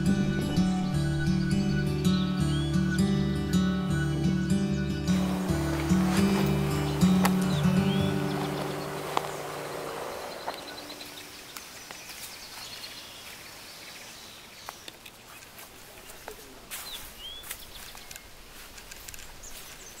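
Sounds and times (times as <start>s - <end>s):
background music: 0.0s - 11.2s
steady forest hiss: 0.0s - 20.0s
scattered ticks: 7.1s - 11.7s.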